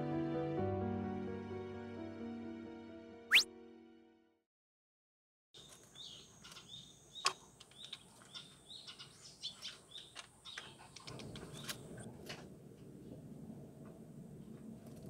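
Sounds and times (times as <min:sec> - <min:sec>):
small birds chirping: 0:05.6 - 0:12.0.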